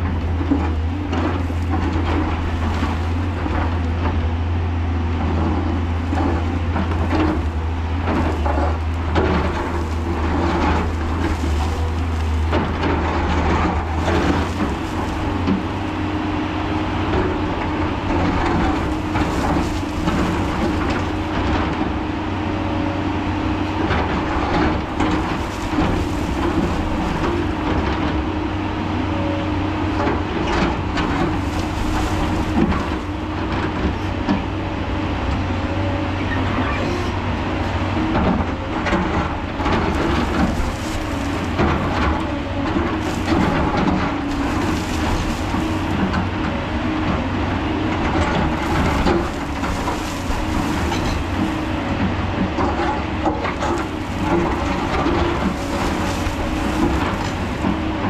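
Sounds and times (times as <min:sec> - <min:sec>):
bucket scraping and knocking: 0:00.0 - 0:04.4, 0:05.1 - 0:22.4, 0:23.0 - 0:28.7, 0:29.9 - 0:34.5, 0:38.9 - 0:58.0
excavator diesel engine running: 0:00.0 - 0:58.0
steady hum: 0:39.5 - 0:58.0.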